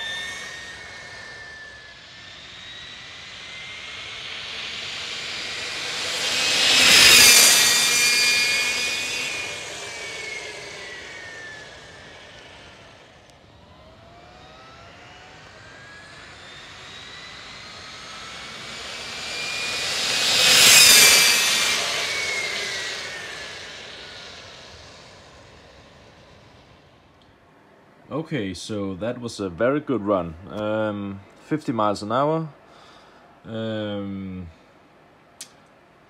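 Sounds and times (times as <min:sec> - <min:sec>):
electric motor whine passing: 0:00.0 - 0:27.2.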